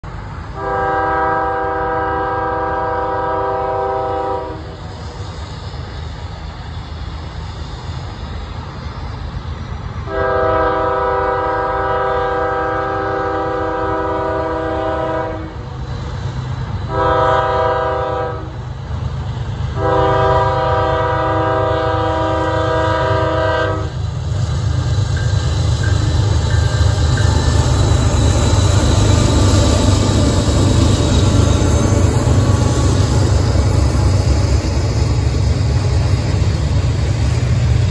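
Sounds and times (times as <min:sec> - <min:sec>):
train engine rumble: 0:00.0 - 0:37.9
locomotive horn blasts: 0:00.6 - 0:04.8, 0:10.1 - 0:15.6, 0:16.9 - 0:18.6, 0:19.8 - 0:24.0.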